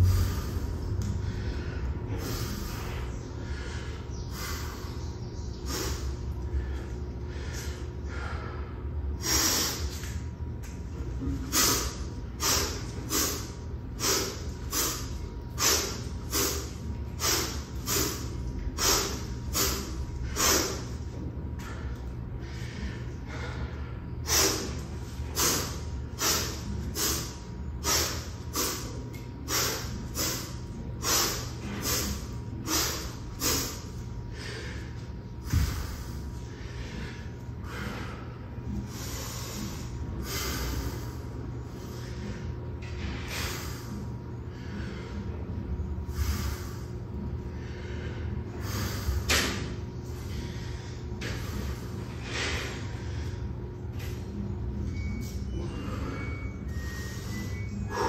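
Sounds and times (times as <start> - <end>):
man's sharp power breaths: 0.0 - 5.0, 5.6 - 10.1, 11.4 - 21.0, 21.6 - 45.3, 46.0 - 53.5.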